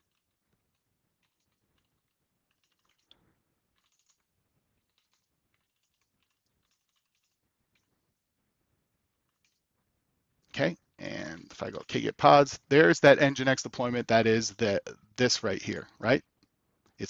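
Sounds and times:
faint keyboard typing: 0.0s - 8.4s, 9.1s - 12.1s.

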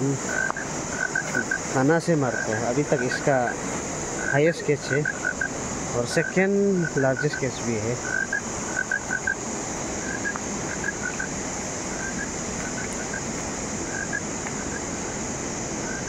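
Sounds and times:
constant high-pitched hiss: 0.0s - 16.0s
river water rushing over stones: 0.0s - 16.0s
short chirping calls: 10.0s - 13.3s.

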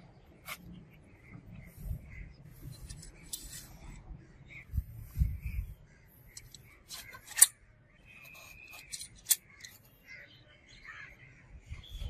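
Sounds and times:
rustling and scraping: 0.4s - 4.0s, 6.3s - 10.0s.

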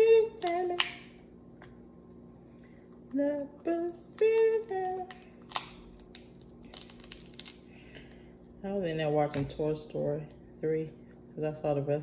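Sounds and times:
woman singing: 0.0s - 1.1s, 3.1s - 5.2s
crab shells cracking: 4.1s - 7.7s.

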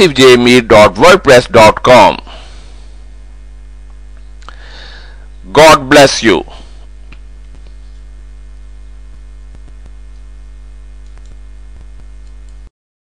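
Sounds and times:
electrical mains hum: 0.0s - 12.7s
faint clicks: 11.0s - 12.6s.

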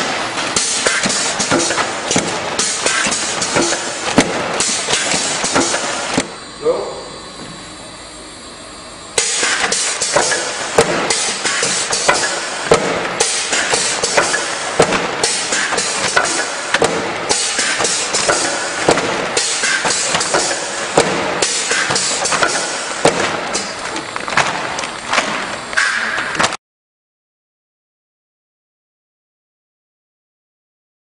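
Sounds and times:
packaging machinery clattering: 0.0s - 6.2s, 9.2s - 26.6s
conveyor clicks and knocks: 9.2s - 26.6s.

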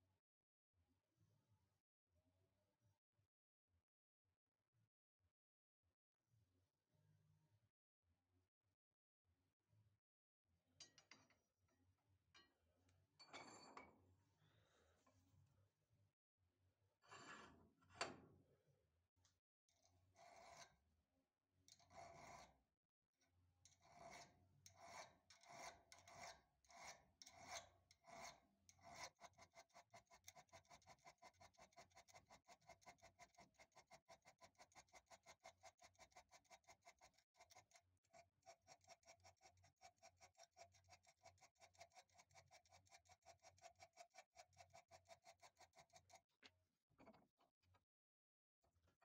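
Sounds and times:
hand file rasping on steel: 20.1s - 20.8s, 21.7s - 22.6s, 23.7s - 46.3s.

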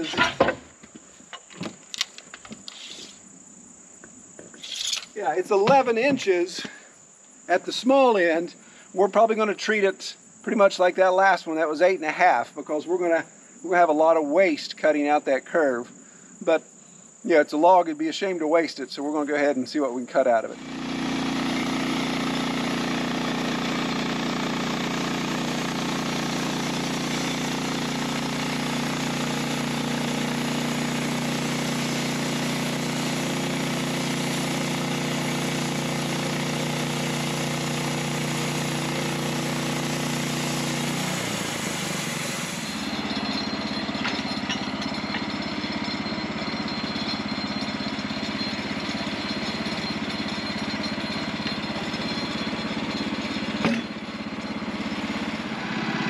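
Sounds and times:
band blade cutting log hiss: 2.0s - 3.4s, 4.5s - 6.8s, 25.3s - 43.3s
petrol engine running: 20.6s - 56.0s.

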